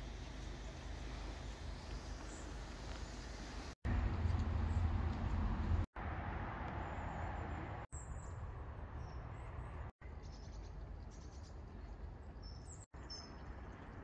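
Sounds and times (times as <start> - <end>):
small birds chirping: 0.3 - 3.8, 6.8 - 14.0.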